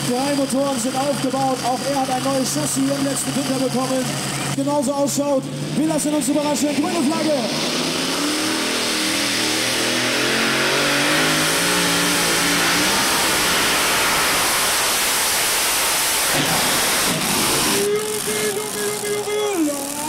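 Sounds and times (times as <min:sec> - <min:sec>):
tractor engines at full throttle: 0:00.0 - 0:20.0.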